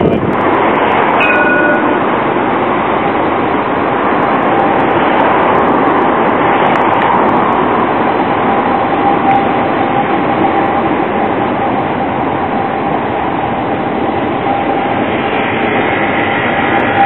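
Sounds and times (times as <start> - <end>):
tram running on rails: 0.0 - 17.0
brief high tone: 1.2 - 2.2.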